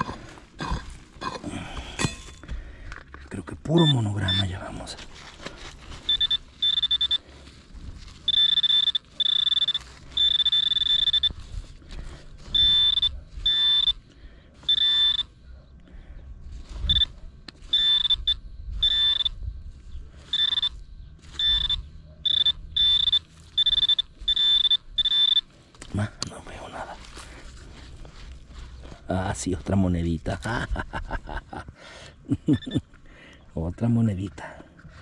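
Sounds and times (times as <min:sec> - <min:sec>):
metal detector beeping: 0:03.6 - 0:05.0, 0:05.8 - 0:07.4, 0:08.1 - 0:11.7, 0:12.4 - 0:15.4, 0:16.7 - 0:26.0, 0:32.4 - 0:32.9.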